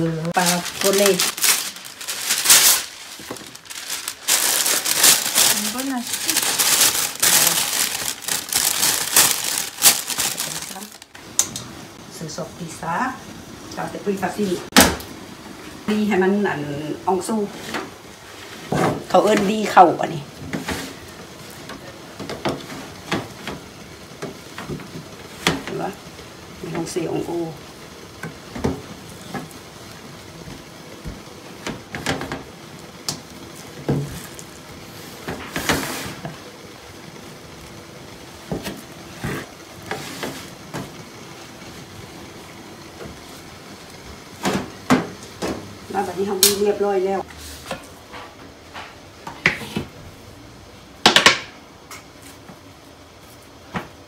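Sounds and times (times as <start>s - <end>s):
bag rustling and knocking: 0.4s - 11.0s.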